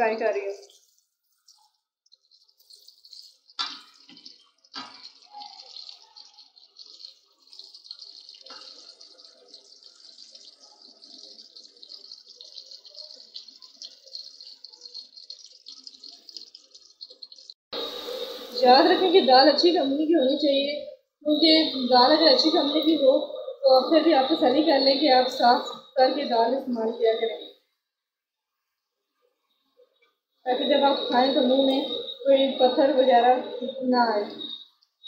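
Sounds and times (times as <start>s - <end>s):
onions sizzling in hot oil: 1.6s - 20.7s, 21.3s - 26.6s, 30.5s - 33.1s.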